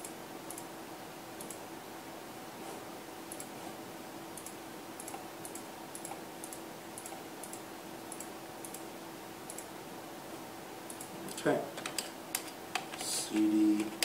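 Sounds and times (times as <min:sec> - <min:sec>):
faint steady hum: 0:00.0 - 0:14.0
computer keyboard keystrokes: 0:10.9 - 0:14.0.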